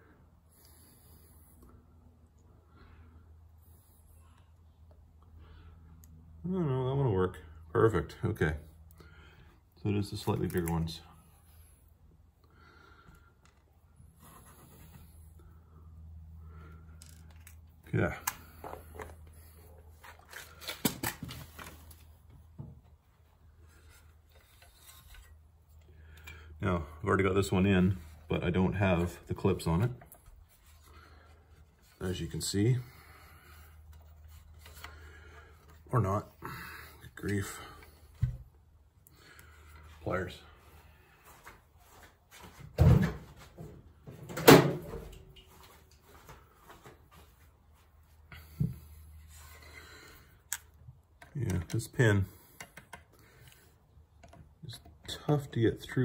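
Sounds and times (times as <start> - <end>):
faint metal rubbing: 23.7 - 25.4.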